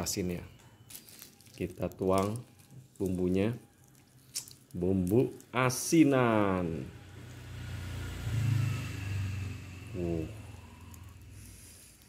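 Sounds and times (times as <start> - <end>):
passing vehicle engine rumble: 6.2 - 12.0.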